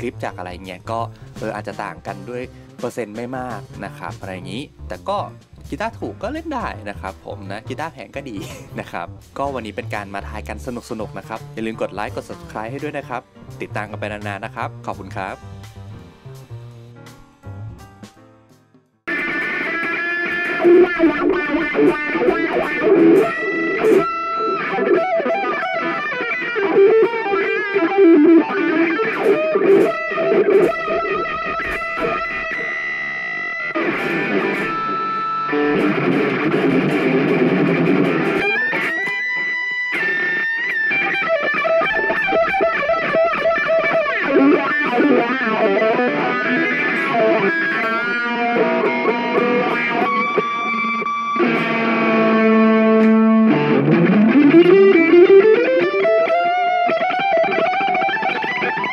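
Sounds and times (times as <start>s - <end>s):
electric guitar solo: 19.1s - 58.9s.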